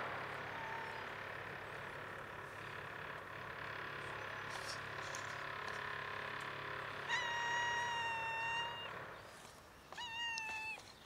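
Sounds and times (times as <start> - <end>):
cat meowing: 7.1 - 8.9, 9.9 - 10.8.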